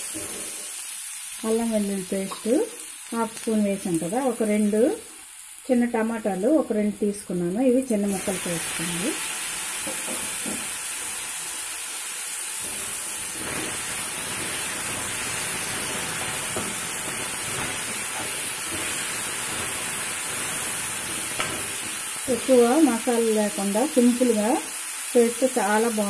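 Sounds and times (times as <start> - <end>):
vegetables sizzling in oil: 0.0 - 26.0
spatula scraping pan: 12.6 - 22.0.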